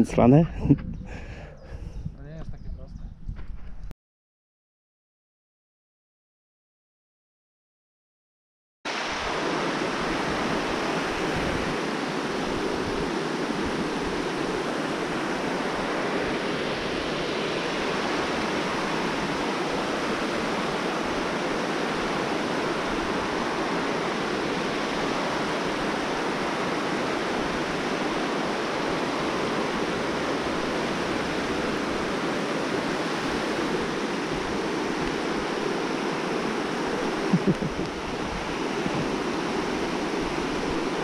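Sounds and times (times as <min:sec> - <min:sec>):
river water rushing: 0:08.9 - 0:41.0.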